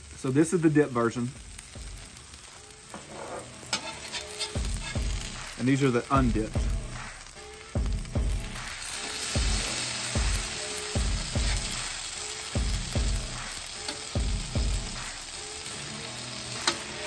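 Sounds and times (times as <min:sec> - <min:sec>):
tortillas sizzling on a griddle: 0:00.0 - 0:17.0
metal spatulas scraping: 0:02.9 - 0:05.3.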